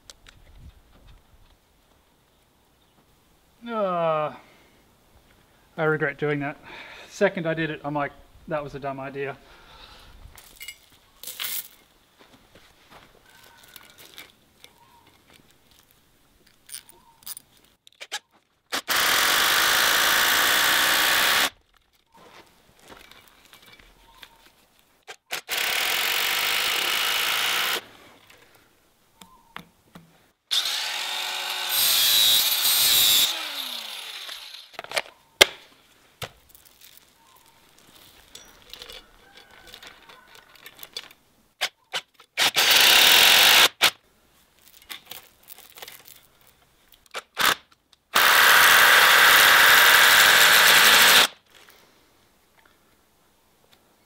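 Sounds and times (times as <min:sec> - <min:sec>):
steel chain clinking: 0:10.4 - 0:11.8, 0:37.8 - 0:41.0
power drill driving screws: 0:18.7 - 0:21.6, 0:25.3 - 0:27.8, 0:30.5 - 0:34.8, 0:42.4 - 0:43.9, 0:47.4 - 0:51.4.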